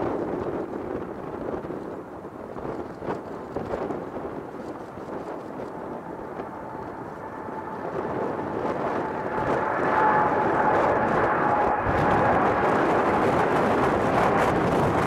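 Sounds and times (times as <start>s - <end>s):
jet engine roar: 0.0s - 15.0s
faint whine: 4.4s - 15.0s.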